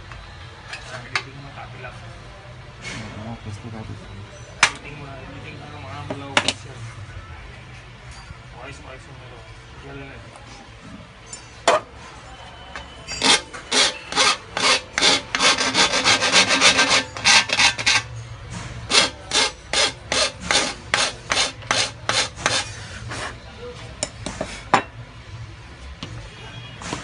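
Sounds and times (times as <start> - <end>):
file rasping on metal: 13.2 - 18.1, 18.9 - 23.3.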